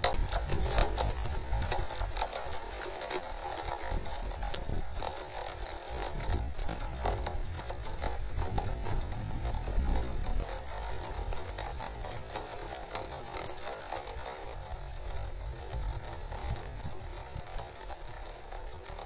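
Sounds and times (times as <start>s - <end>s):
rain pattering: 0.0s - 19.0s
low rumble: 6.0s - 12.4s.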